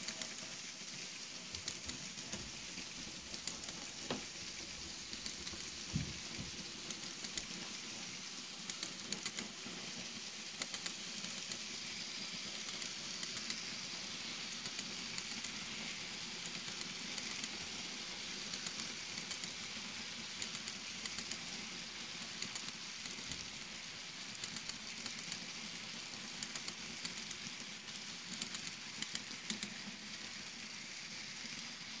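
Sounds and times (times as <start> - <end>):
model train wheels rushing on rails: 0.0 - 32.0.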